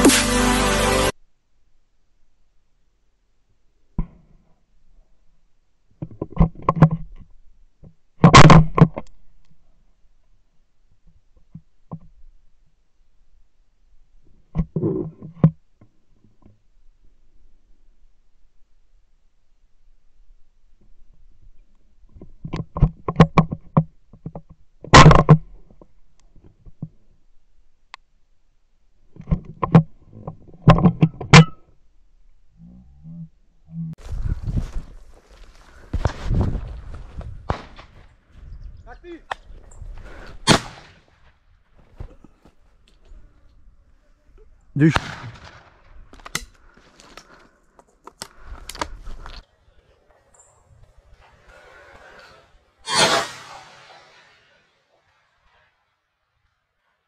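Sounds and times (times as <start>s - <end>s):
shotgun shot: 37.5s - 38.0s, 40.4s - 41.1s, 44.8s - 45.7s, 52.9s - 54.4s.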